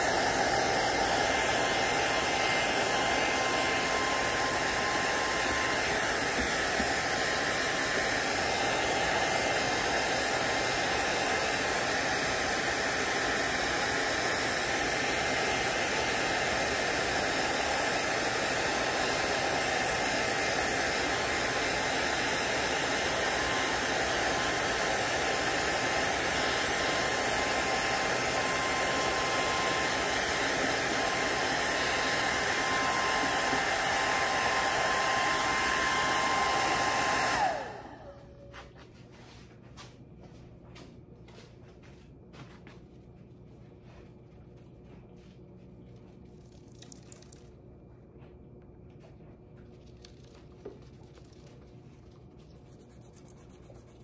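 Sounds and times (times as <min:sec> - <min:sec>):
heat gun blowing air: 0:00.0 - 0:38.5.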